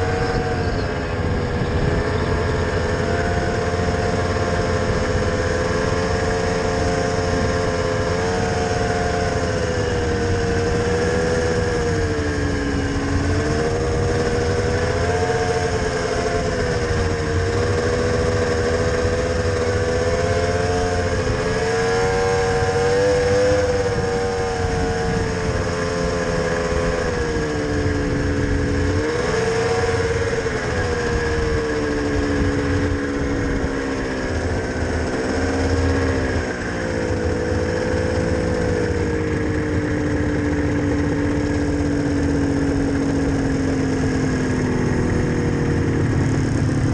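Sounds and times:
snowmobile engine running: 0.0s - 46.9s.

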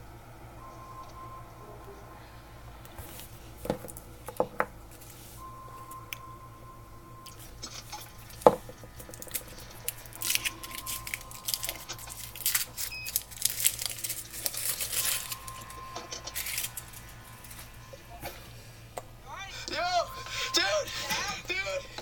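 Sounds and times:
plastic wrapper crinkling: 7.3s - 17.8s.

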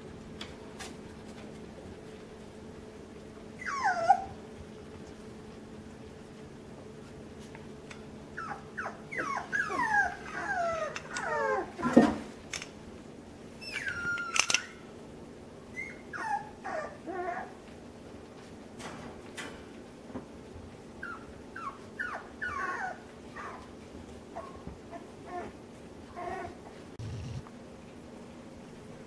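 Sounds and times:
puppies whining: 3.6s - 4.5s, 8.3s - 12.0s, 13.6s - 14.9s, 15.7s - 17.7s, 21.0s - 23.7s, 24.3s - 27.4s
faint steady hum: 26.1s - 29.0s.

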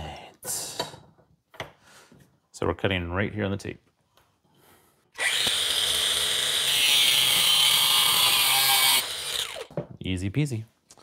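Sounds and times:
angle grinder cutting metal: 5.2s - 9.7s.

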